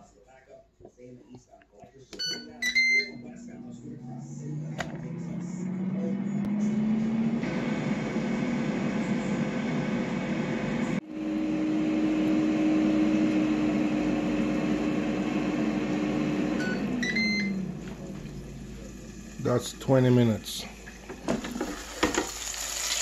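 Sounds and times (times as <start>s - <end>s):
air fryer beeps: 2.1s - 3.6s, 15.0s - 17.9s
air fryer fan humming: 2.2s - 23.0s.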